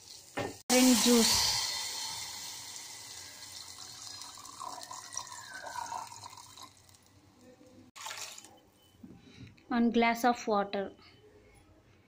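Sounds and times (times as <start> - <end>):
liquid pouring into a pot: 1.1 - 7.3, 8.0 - 8.6.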